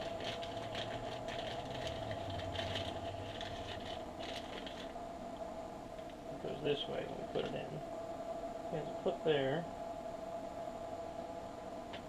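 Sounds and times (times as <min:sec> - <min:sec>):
plastic bag crinkling: 0:00.0 - 0:05.0
steady background hum: 0:00.0 - 0:12.0.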